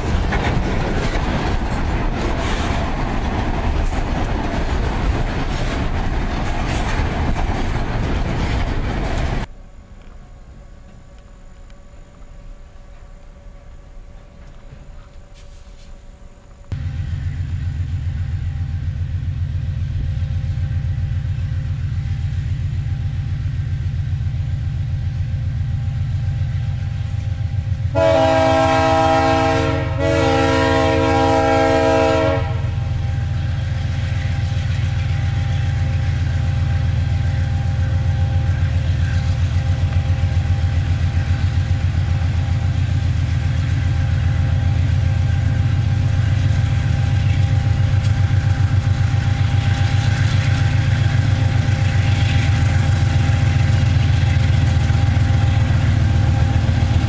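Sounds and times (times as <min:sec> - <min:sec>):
locomotive engine rumble: 0:00.0 - 0:57.0
locomotive air horn blasts: 0:27.9 - 0:33.1.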